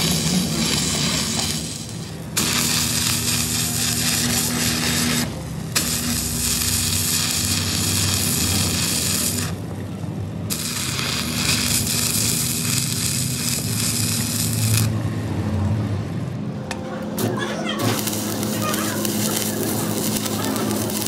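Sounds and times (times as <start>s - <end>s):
welding arc crackling: 0.0s - 15.0s, 17.2s - 21.0s.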